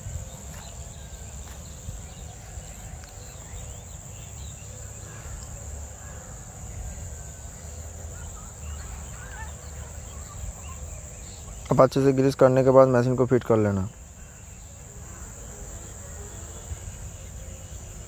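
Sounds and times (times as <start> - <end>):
high-pitched insect drone: 13.8 - 18.0.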